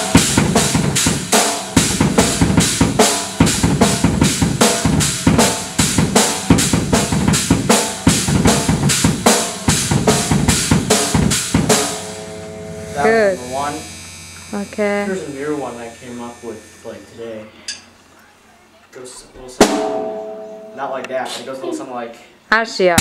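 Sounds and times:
bass drum and snare beat: 0.0 - 14.6
cymbals ringing: 0.0 - 18.1, 19.6 - 21.3.

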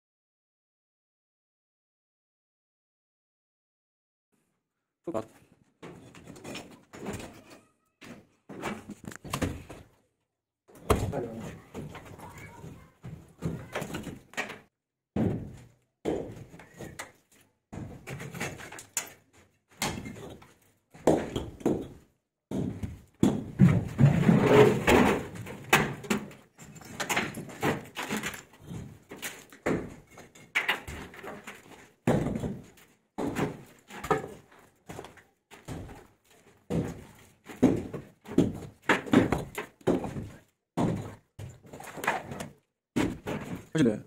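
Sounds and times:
concrete blocks knocking together: 19.8 - 43.7.

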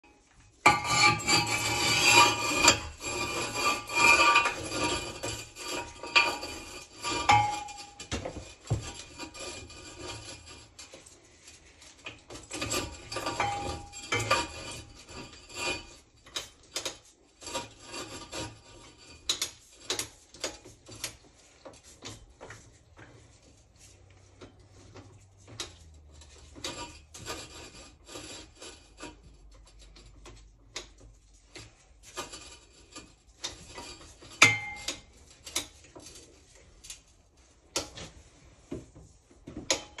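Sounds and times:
chain scraping against metal pipe: 0.6 - 22.7, 24.8 - 37.1.

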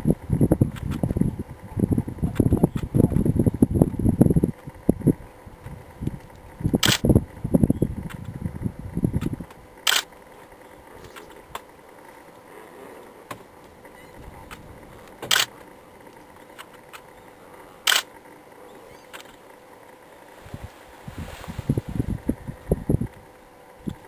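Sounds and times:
low rumble: 0.0 - 10.0, 12.3 - 24.0
camera shutter clicks: 6.8 - 7.0, 9.9 - 10.1, 15.3 - 15.5, 17.9 - 18.1
faint steady hiss: 9.5 - 24.0.

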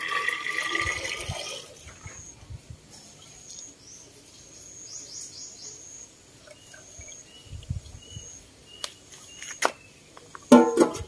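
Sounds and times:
small birds chirping: 2.0 - 10.5
metal pot set down on concrete: 10.5 - 11.0.

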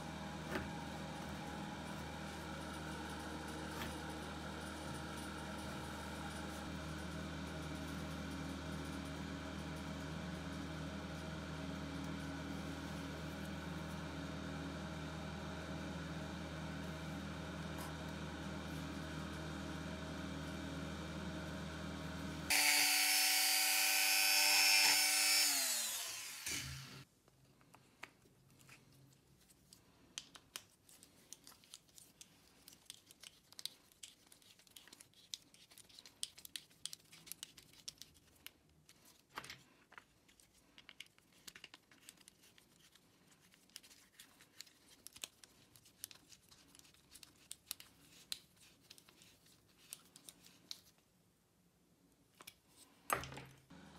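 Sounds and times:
power tool running: 0.0 - 27.0
high-pitched power tool winding down: 22.5 - 27.0.

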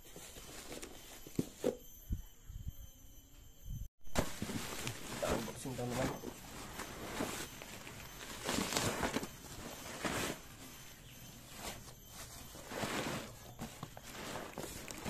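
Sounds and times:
plastic rustling: 0.0 - 1.8, 4.1 - 15.0
cardboard scraping and tearing: 4.2 - 10.8, 11.4 - 15.0.

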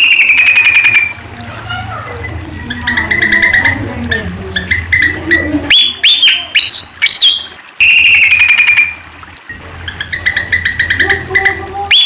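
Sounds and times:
bird squeaky chirps: 0.0 - 1.2, 1.9 - 9.0, 9.8 - 12.0
bird upward-slurred whistles: 0.0 - 1.2, 5.7 - 9.0
bird rattling trill: 0.0 - 9.0, 9.8 - 12.0.

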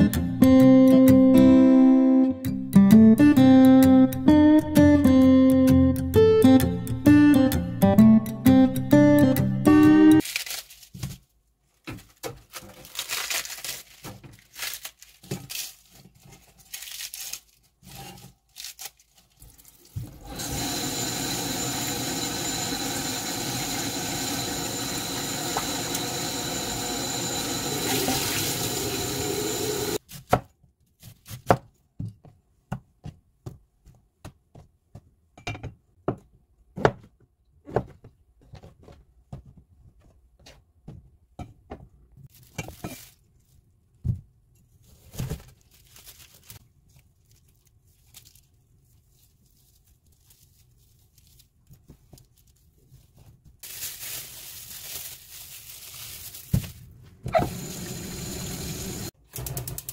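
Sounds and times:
lettuce leaves rustling: 10.2 - 11.2, 12.1 - 20.2, 42.3 - 43.6, 45.5 - 52.7, 53.6 - 57.0
kitchen tap running: 19.9 - 30.0, 57.3 - 59.9.

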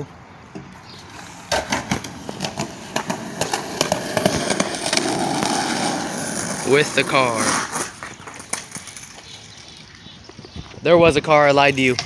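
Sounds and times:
skateboard wheels rolling on concrete: 0.0 - 12.0
wheels clacking over slab joints: 1.5 - 9.9.

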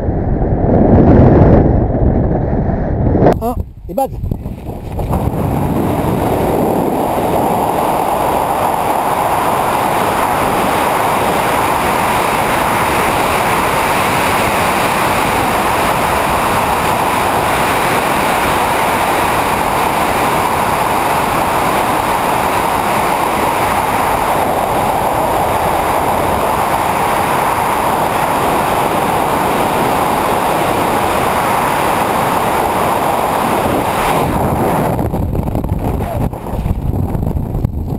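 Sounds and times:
wind rushing over microphone: 0.0 - 37.9.

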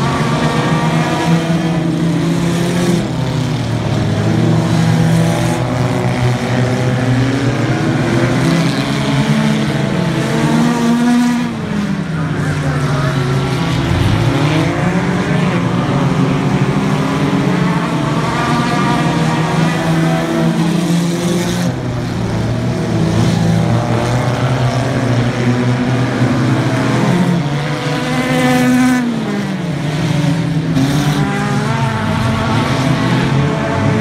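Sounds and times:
race car engines revving: 0.0 - 34.0.

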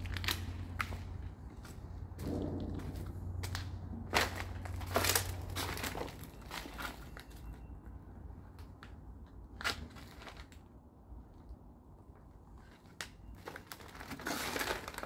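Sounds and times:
footsteps crunching on paper: 0.0 - 2.6, 3.5 - 7.6.

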